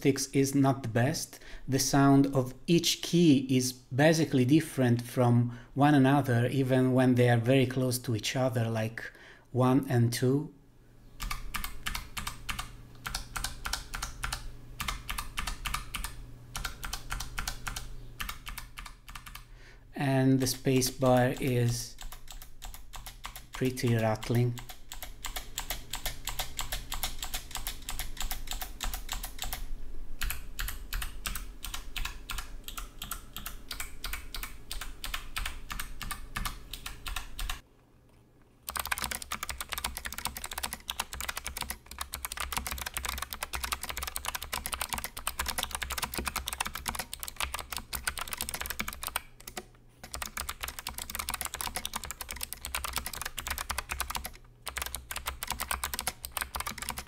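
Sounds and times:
clicky keyboard typing: 11.2 - 19.5, 20.7 - 29.6, 30.2 - 37.6, 38.7 - 57.0.

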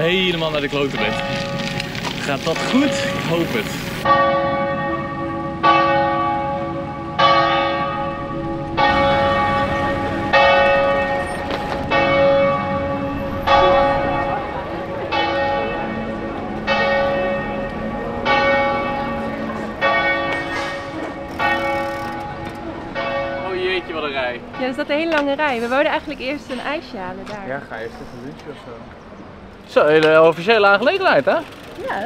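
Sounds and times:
church bells tolling: 0.0 - 25.5.

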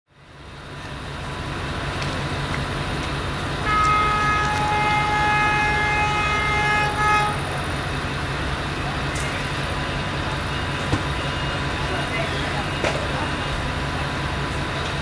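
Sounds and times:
diesel train engine rumbling: 0.1 - 15.0
locomotive air horn chord: 3.6 - 7.5.

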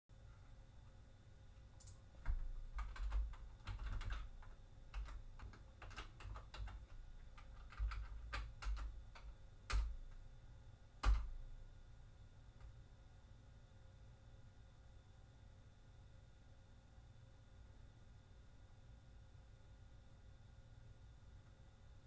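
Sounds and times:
computer keyboard keys clicking: 1.8 - 10.2, 11.0 - 11.4.

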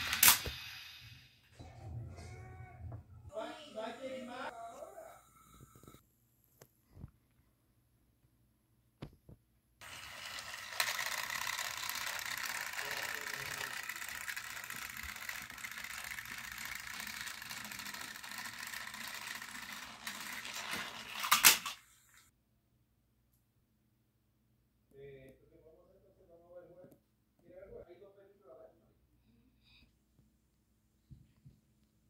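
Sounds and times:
toy train engines whirring: 0.0 - 1.4, 9.8 - 22.3.

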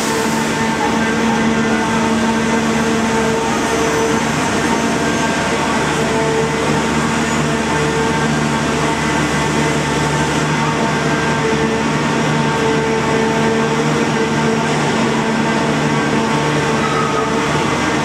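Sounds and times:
diesel engine droning: 0.0 - 18.0.

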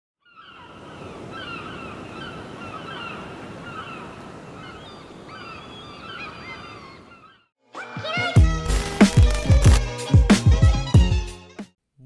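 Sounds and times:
short falling bird calls: 0.2 - 7.5
ocean surf washing: 0.6 - 7.1.

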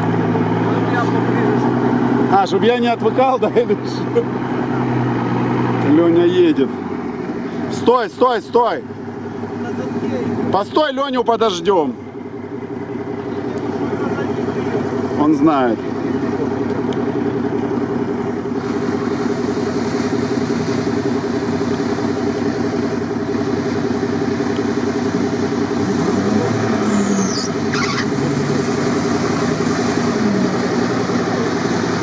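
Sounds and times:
vehicle engine: 0.0 - 32.0
rushing water: 18.2 - 32.0
high squeal: 26.7 - 28.2.

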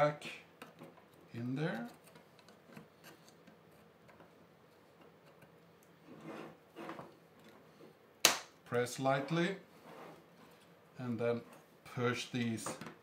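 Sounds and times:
scrapes: 6.0 - 7.1, 9.7 - 10.7.

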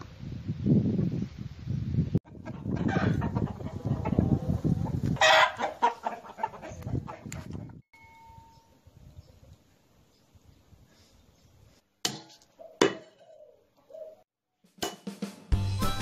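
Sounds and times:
chickens clucking: 2.2 - 7.8
loud chicken squawk: 5.2 - 6.8.

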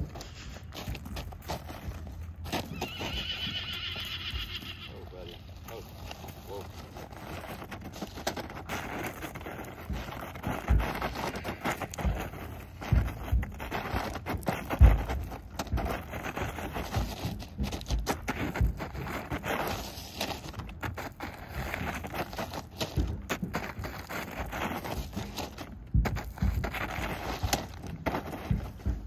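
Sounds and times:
plastic bag scraping on gravel: 0.0 - 17.4, 18.2 - 25.6
dull low thumps: 9.3 - 19.4, 22.9 - 29.0.

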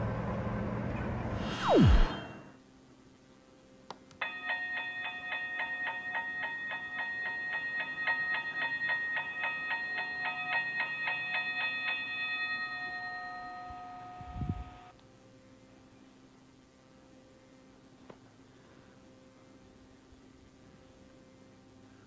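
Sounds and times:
toy crossing bell ringing: 4.2 - 14.8.

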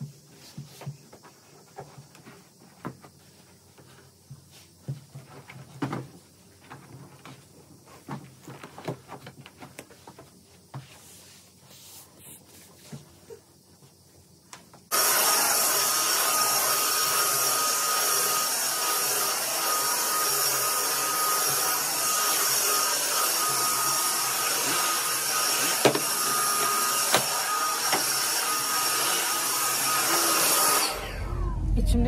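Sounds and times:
stick vacuum cleaner running: 14.9 - 31.6.

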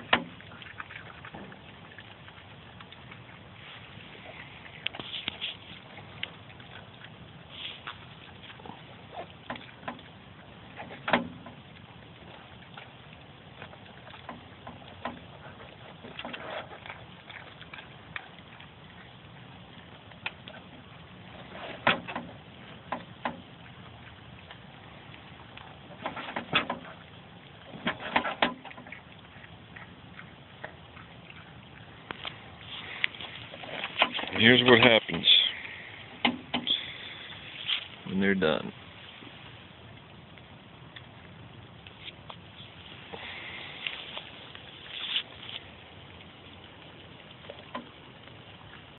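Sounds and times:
animal crunching and chewing: 0.0 - 38.4.

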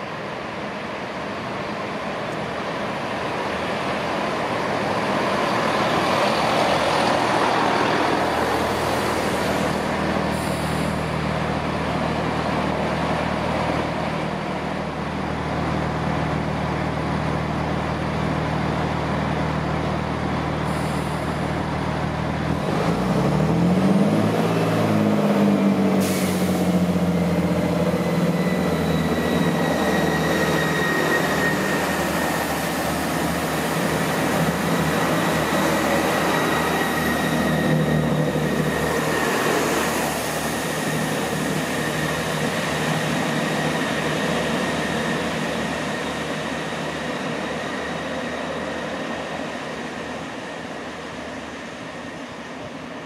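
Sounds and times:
diesel train engine: 0.0 - 53.0
short air hisses: 8.7 - 11.1, 20.7 - 21.4, 26.0 - 26.8
rising whine: 26.6 - 49.7.

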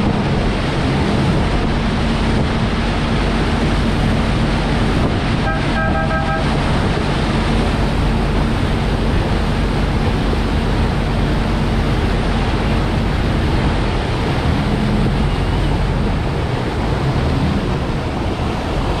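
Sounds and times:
boat engine humming: 0.0 - 19.0
rushing water: 0.0 - 19.0
wind buffeting microphone: 0.0 - 19.0
two-note tone: 5.4 - 6.6.

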